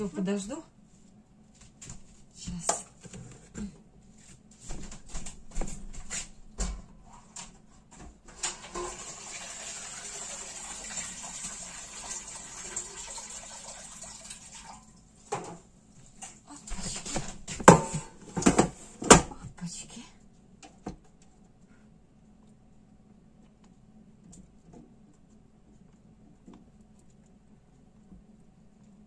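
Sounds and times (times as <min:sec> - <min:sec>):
liquid running: 0:08.4 - 0:15.4
metal tray knocks: 0:17.6 - 0:19.2.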